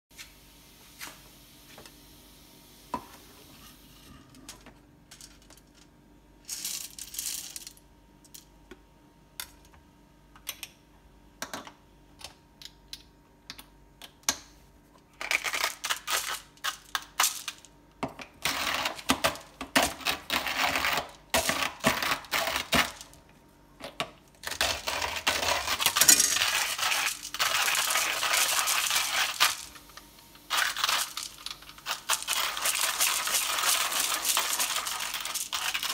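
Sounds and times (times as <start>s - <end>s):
coffee beans rattling into grinder: 4.5s - 8.4s, 15.2s - 17.7s, 18.4s - 23.2s, 24.4s - 35.9s
hand grinder crunching beans: 15.2s - 17.7s, 18.4s - 23.2s, 24.4s - 35.9s.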